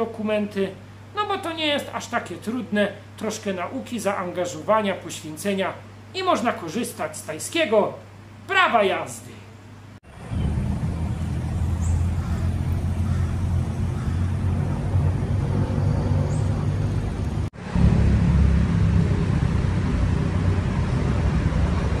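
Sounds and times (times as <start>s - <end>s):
low outdoor rumble: 9.6s - 22.0s.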